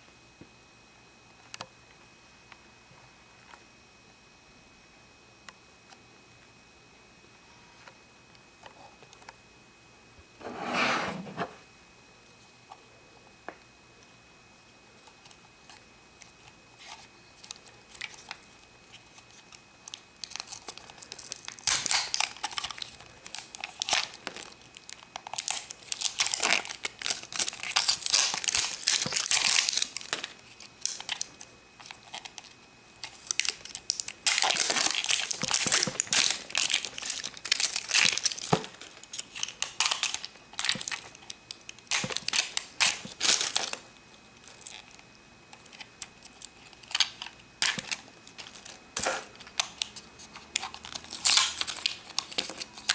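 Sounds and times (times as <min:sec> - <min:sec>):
plastic wrapper crinkling and tearing: 0:15.2 - 0:45.0, 0:45.6 - 0:52.9.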